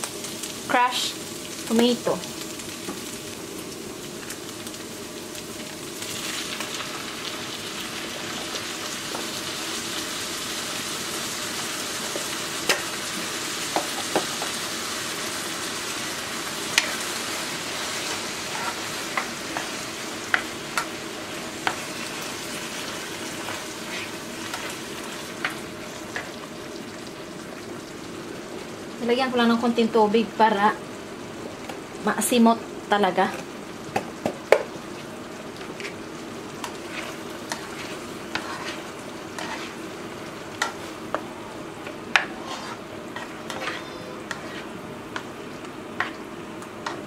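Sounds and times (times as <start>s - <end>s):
meat sizzling in a frying pan: 0.0s - 47.0s.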